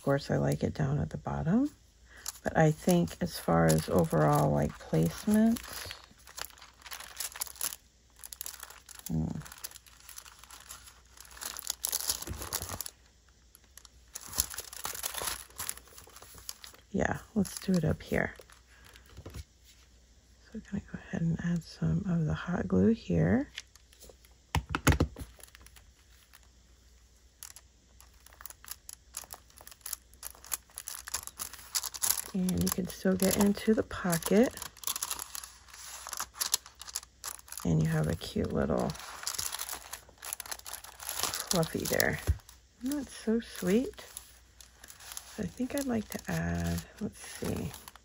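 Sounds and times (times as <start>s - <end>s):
paper and fabric rustling: 1.6s - 19.9s, 27.4s - 48.0s.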